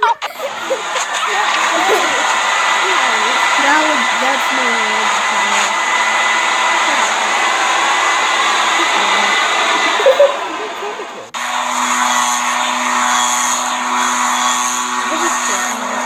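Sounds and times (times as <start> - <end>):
faint voice: 0.0 - 5.8, 8.7 - 11.3
loud steady rushing noise: 0.0 - 16.0
thin high whine: 0.0 - 16.0.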